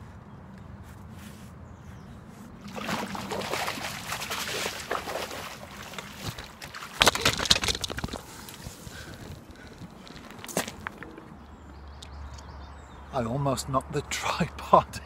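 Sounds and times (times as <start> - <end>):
fish splashing at surface: 2.6 - 8.4
knocks and rustling: 6.0 - 8.7.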